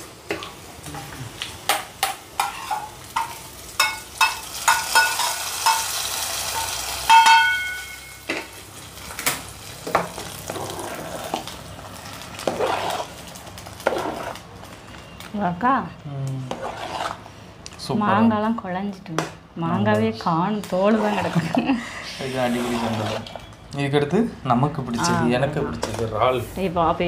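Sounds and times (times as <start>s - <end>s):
spices sizzling in oil: 0.0s - 15.8s
spoon scraping a metal pan: 2.4s - 6.0s, 16.5s - 17.2s, 20.8s - 23.4s
ladle scraping in a pot: 12.4s - 13.1s, 13.8s - 14.4s, 16.5s - 17.3s, 20.8s - 23.4s.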